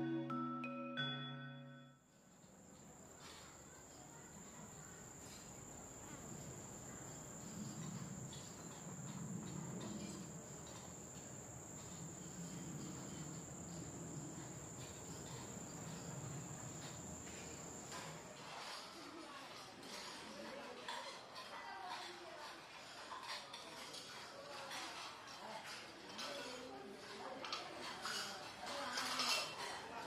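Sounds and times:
low outdoor ambient hum: 2.1 - 18.3
insects trilling: 2.5 - 18.2.

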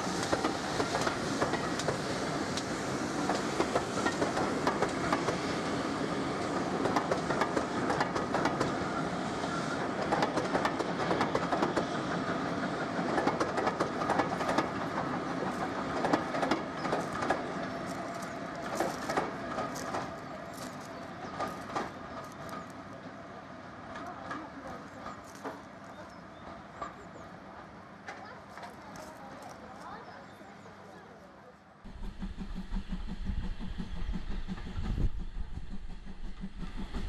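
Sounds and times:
train wheels clattering over rail joints: 0.0 - 22.9, 23.9 - 27.2.

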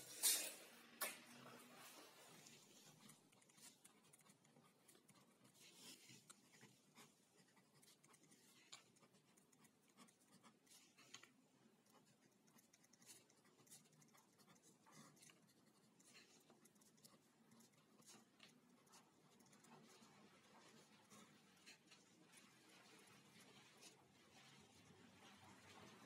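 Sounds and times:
pen scratching on paper: 2.5 - 20.0, 20.7 - 22.1.

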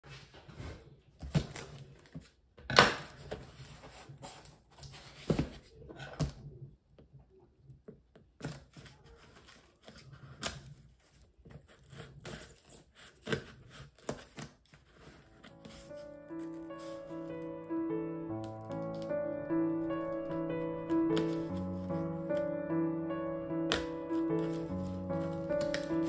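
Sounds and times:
packing tape slit and torn: 23.7 - 26.0.

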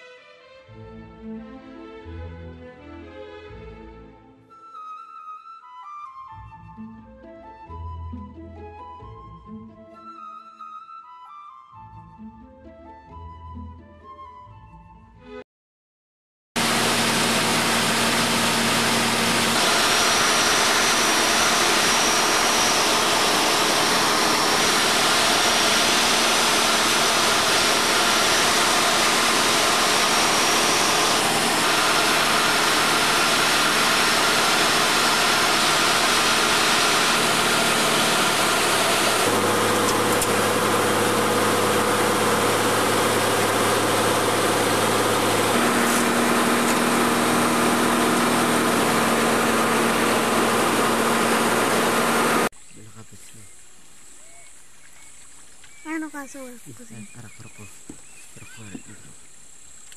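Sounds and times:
aircraft engine and propeller droning: 16.6 - 52.5.

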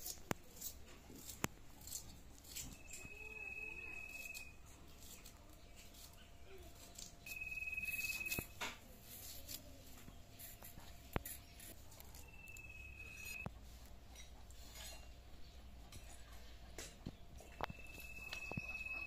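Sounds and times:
blade cutting vegetables clicks: 0.0 - 3.0
high steady whistle: 2.7 - 4.6, 7.2 - 8.5, 12.1 - 13.5, 17.6 - 19.0.

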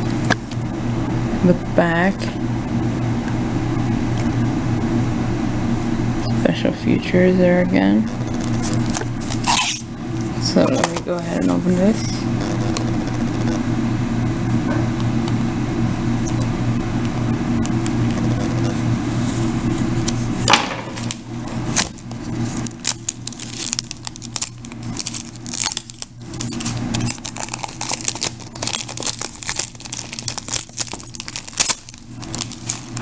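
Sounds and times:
low hum: 0.0 - 33.0
plastic film crackling as torn: 20.9 - 33.0.

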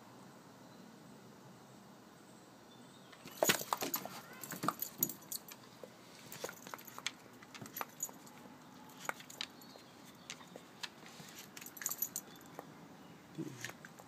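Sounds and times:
collar tags jingling: 3.2 - 10.7, 11.3 - 12.6.

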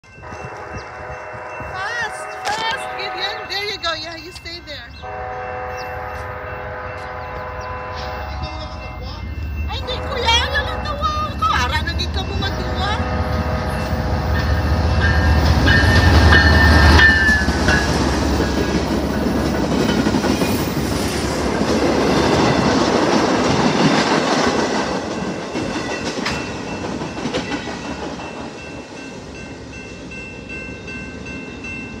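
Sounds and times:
high ringing: 0.0 - 19.3
diesel locomotives rumbling: 0.0 - 32.0
train cars rolling on rails: 0.0 - 32.0.

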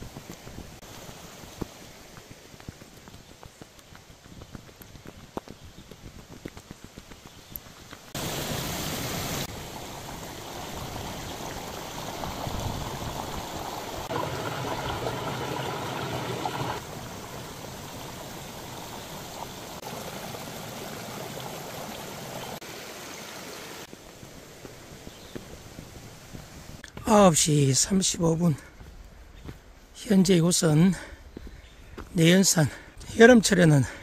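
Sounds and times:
stream rushing over rocks: 7.6 - 24.9.

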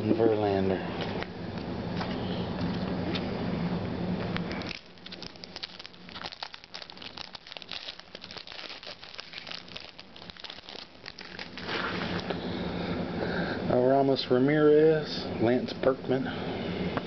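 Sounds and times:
plastic wrapper crinkling: 4.5 - 12.4.

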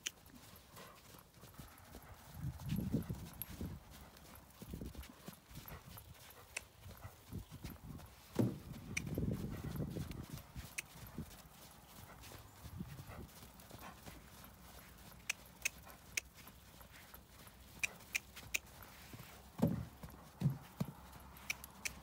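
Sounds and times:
hoofbeats on sand: 0.0 - 22.0.

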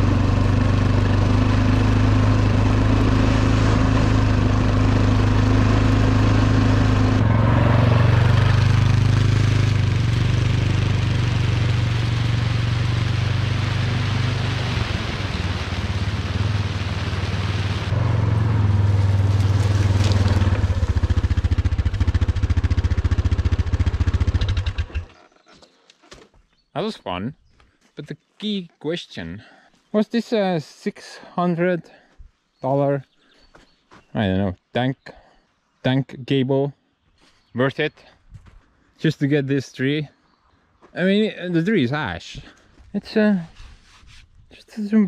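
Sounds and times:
bulldozer engine running: 0.0 - 25.2.

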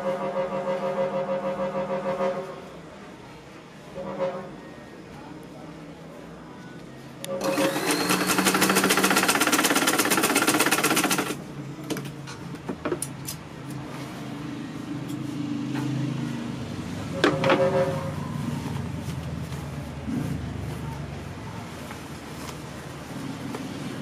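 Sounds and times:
sewing machine stitching: 7.4 - 11.4.

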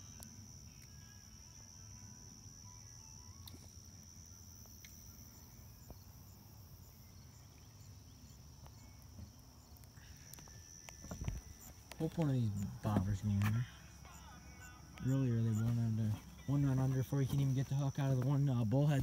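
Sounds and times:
crickets trilling: 0.0 - 19.0.

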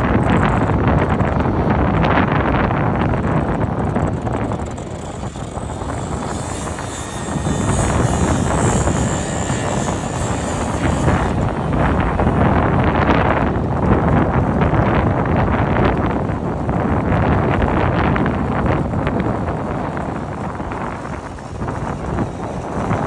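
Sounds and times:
engine drone: 0.0 - 23.0
wind buffeting microphone: 0.0 - 23.0.

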